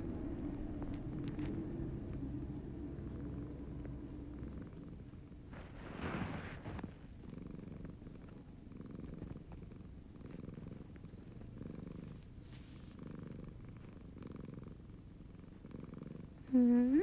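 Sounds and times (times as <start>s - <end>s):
cat purring: 0.0s - 17.0s
rustling: 0.8s - 1.8s, 5.4s - 7.4s, 8.1s - 14.7s.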